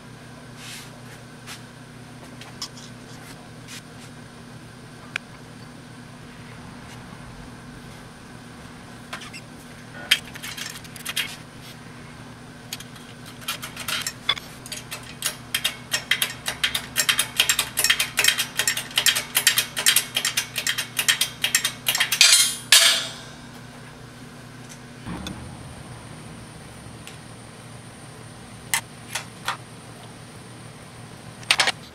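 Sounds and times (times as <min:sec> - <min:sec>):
low shop hum: 0:00.0 - 0:31.9
short loud burst of noise: 0:25.0 - 0:28.6.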